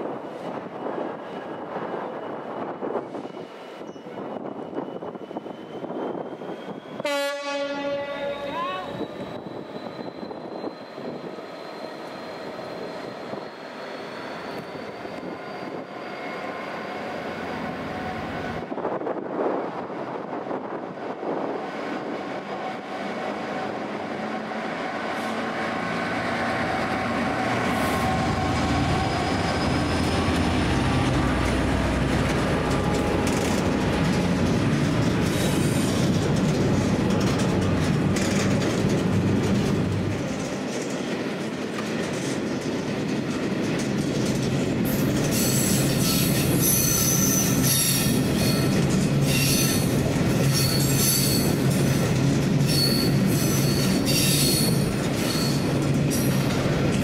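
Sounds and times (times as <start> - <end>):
freight train rumbling: 0.0 - 57.0
high-pitched wheel squeal: 8.5 - 16.5, 27.6 - 30.2, 45.4 - 51.6, 52.6 - 55.7
wheels clicking over rail joints: 31.4 - 45.4.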